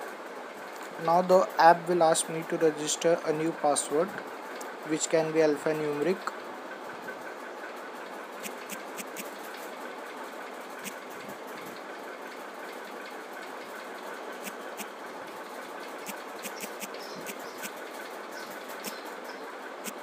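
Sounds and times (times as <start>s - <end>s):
background hiss and hum: 0.0s - 20.0s.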